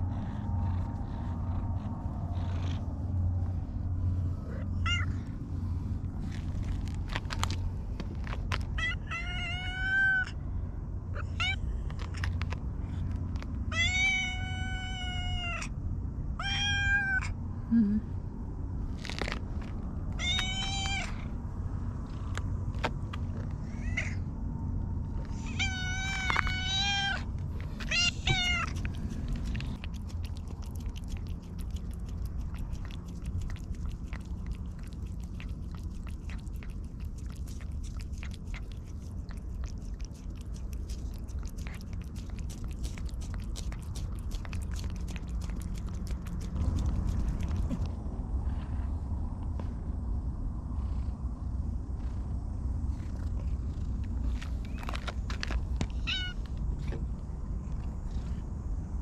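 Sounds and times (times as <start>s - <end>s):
cat meowing: 4.5s - 5.2s, 8.8s - 10.4s, 13.7s - 15.7s, 16.4s - 17.4s, 20.2s - 21.2s, 25.4s - 28.9s, 56.0s - 56.5s
cat licking wetly: 27.7s - 48.0s.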